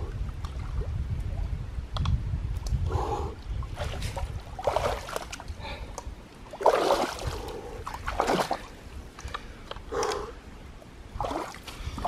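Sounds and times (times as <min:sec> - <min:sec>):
person wading through shallow water: 0:03.6 - 0:10.3, 0:11.0 - 0:12.0.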